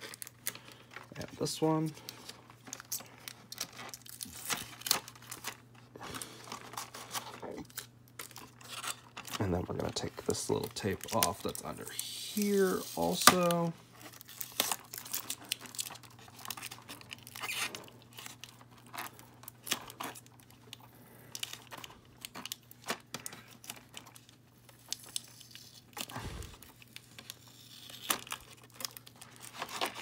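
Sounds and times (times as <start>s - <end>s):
tape peeling off plastic: 10.5s - 30.0s.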